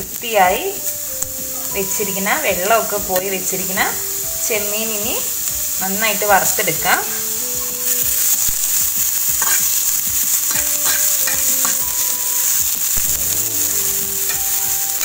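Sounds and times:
prawns sizzling in a pan: 0.0s - 15.0s
spatula scraping and tapping pan: 7.8s - 13.0s.

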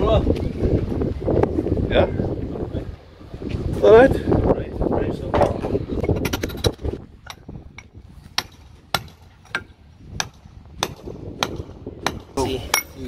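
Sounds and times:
hammer striking brick: 8.4s - 13.0s.

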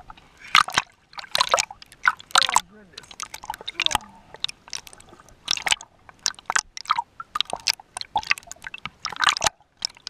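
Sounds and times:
water splashing on microphone: 0.0s - 10.0s.

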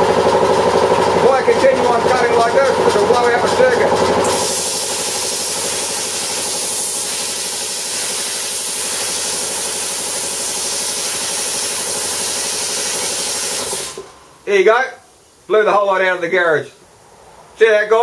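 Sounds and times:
air compressor humming: 0.0s - 15.5s
plasma cutter hissing: 4.2s - 14.1s.

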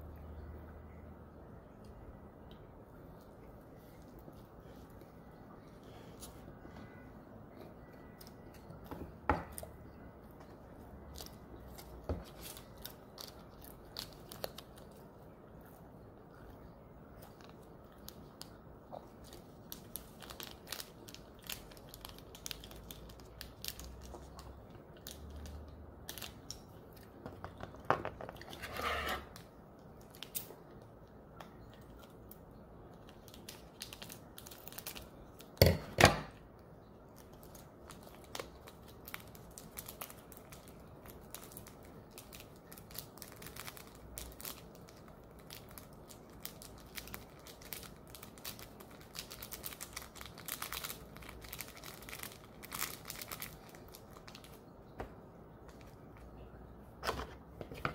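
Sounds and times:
plastic packets crinkling: 10.8s - 15.3s, 17.2s - 27.2s, 31.6s - 35.8s, 37.0s - 54.7s
loud plastic crackles: 11.1s - 15.1s, 17.2s - 30.8s, 31.6s - 36.4s, 37.1s - 56.0s.

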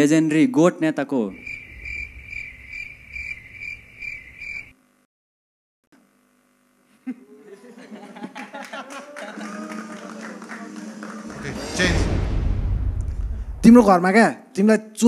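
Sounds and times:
cricket chirping: 1.3s - 4.8s.

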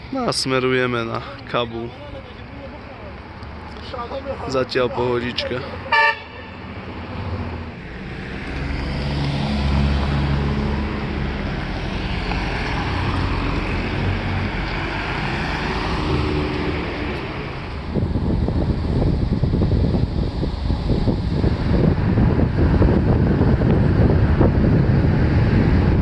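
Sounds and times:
tyre and road noise: 0.0s - 26.0s
car engine drone: 0.9s - 26.0s
wind buffeting microphone: 6.7s - 26.0s.

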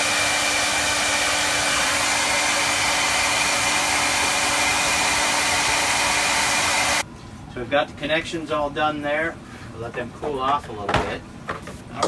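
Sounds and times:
hair dryer running: 0.0s - 7.0s.

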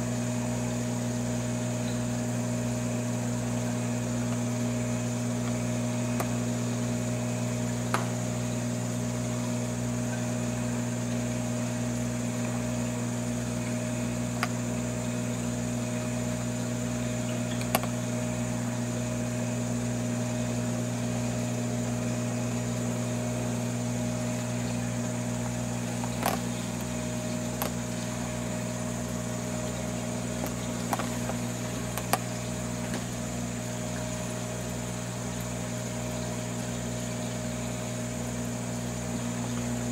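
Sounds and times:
aquarium pump humming: 0.0s - 39.9s
clicks: 25.9s - 28.1s, 30.4s - 33.0s.

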